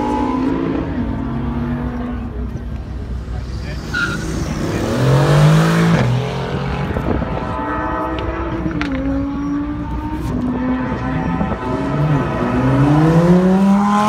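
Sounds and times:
other car engines running: 0:00.0 - 0:14.0.

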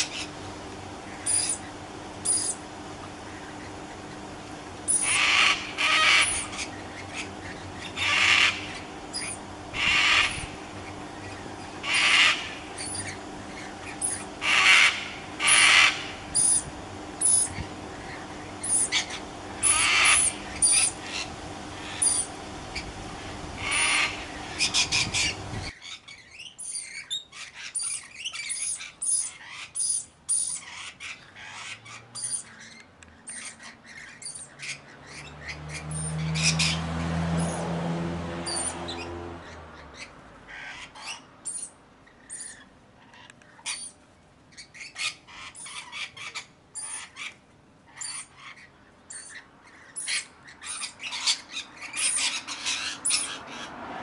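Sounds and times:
cockatoo harsh calls: 0:01.1 - 0:04.3, 0:04.9 - 0:23.0, 0:23.6 - 0:37.7, 0:38.4 - 0:53.9.

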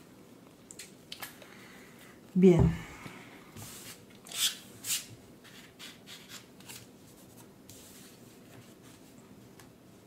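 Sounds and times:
cards sliding and rustling: 0:03.6 - 0:09.1.

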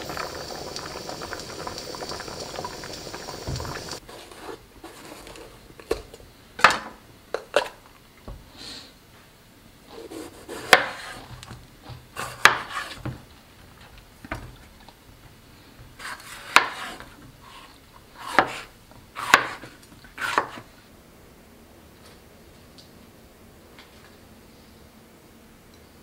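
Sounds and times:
knife slicing pepper: 0:09.9 - 0:11.2, 0:12.2 - 0:13.0, 0:16.0 - 0:17.0, 0:18.2 - 0:20.6.

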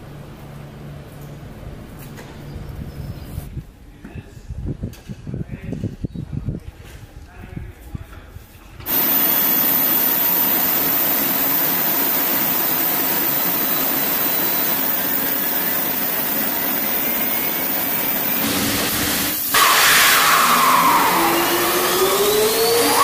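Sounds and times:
high engine whine: 0:08.9 - 0:23.0
jet engine rushing: 0:08.9 - 0:23.0.

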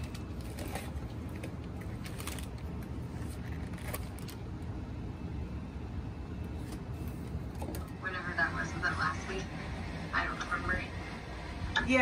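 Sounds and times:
plastic package rustling: 0:00.0 - 0:04.4
steady low rumble: 0:00.0 - 0:12.0.

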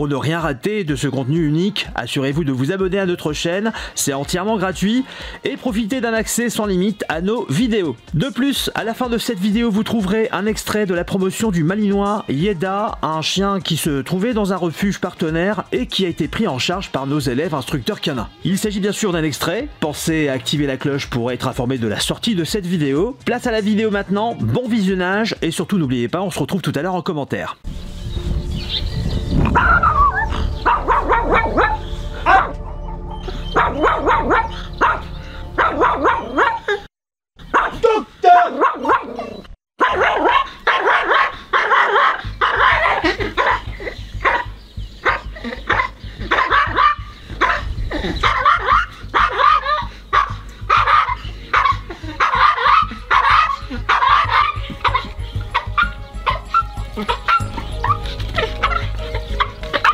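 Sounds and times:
small dog barking: 0:30.6 - 0:32.6, 0:33.5 - 0:36.8, 0:37.5 - 0:59.9.

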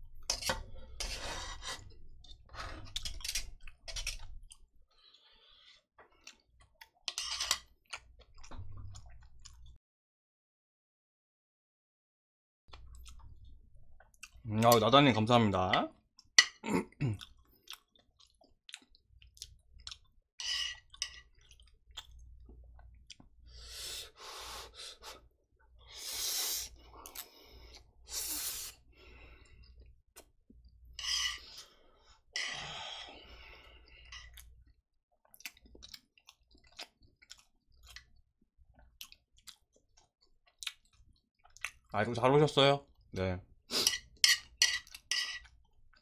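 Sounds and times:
person chewing noodles: 0:02.2 - 0:07.1, 0:07.8 - 0:09.8, 0:12.7 - 0:14.4, 0:16.2 - 0:26.0, 0:26.6 - 0:30.3, 0:31.4 - 0:41.9
person breathing heavily: 0:31.4 - 0:34.1.

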